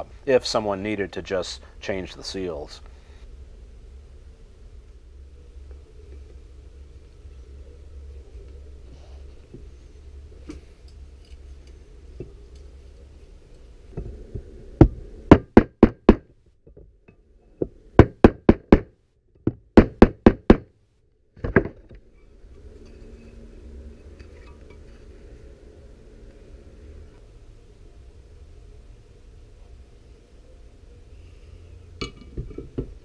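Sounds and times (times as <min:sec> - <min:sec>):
sharp knocks: 0:14.8 - 0:16.3, 0:18.0 - 0:20.7.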